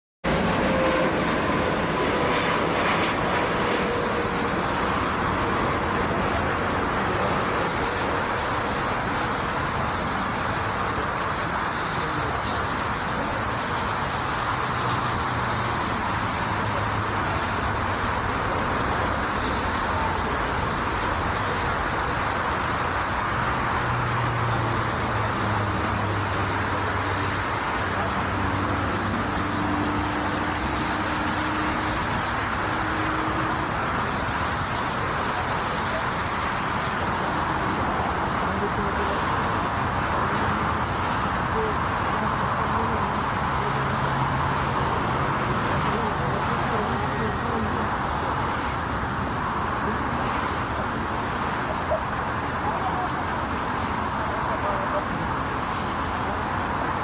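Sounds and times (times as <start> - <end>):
engine whine: 0.2 - 57.0
jet engine rushing noise: 0.2 - 57.0.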